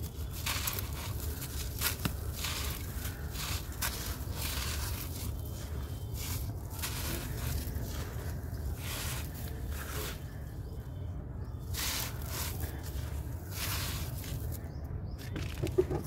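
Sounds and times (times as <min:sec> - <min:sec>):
sand blocks crushed by hand: 0:00.0 - 0:10.3
steady low rumble: 0:00.0 - 0:16.0.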